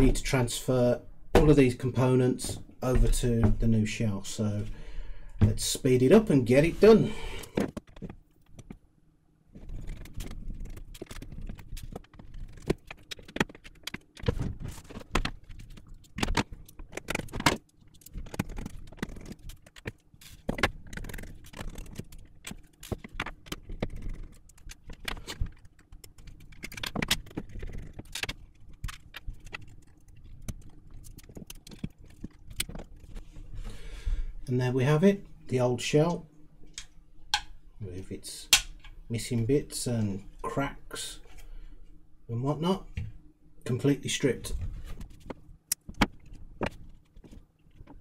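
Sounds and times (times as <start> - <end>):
faint steady hum: 0.0 - 48.0
plastic and metal parts clicking: 9.6 - 33.2.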